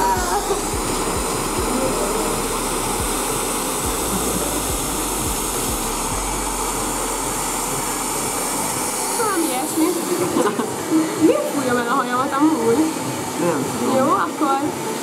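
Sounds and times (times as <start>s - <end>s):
low thumps: 0.0s - 13.3s
hair dryer running: 0.0s - 15.0s.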